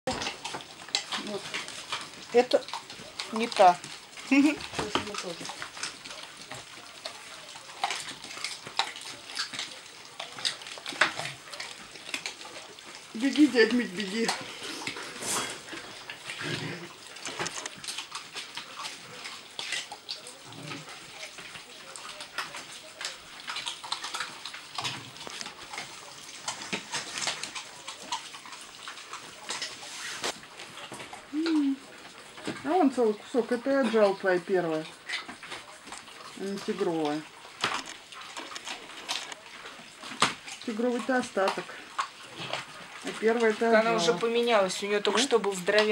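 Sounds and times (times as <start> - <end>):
puppies chewing and licking: 0.0 - 45.9.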